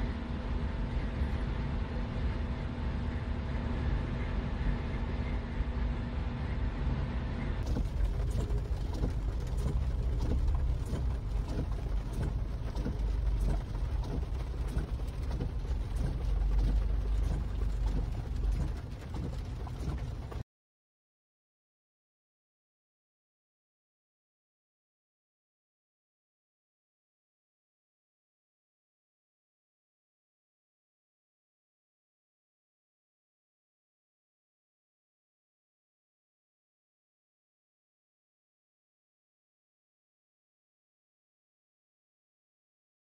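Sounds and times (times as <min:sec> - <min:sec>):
vehicle engine and road noise: 0:00.0 - 0:20.4
heavy rain on car roof: 0:07.6 - 0:20.4.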